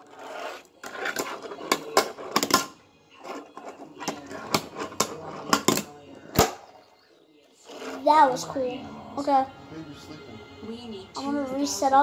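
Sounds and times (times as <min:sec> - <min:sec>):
fingerboard wheels rolling: 0:00.0 - 0:05.9, 0:07.6 - 0:08.1.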